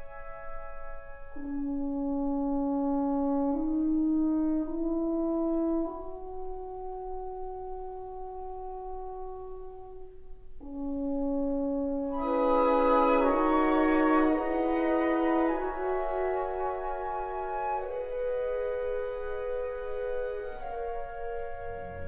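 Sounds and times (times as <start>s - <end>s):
slow horn-like melody: 0.0s - 22.0s.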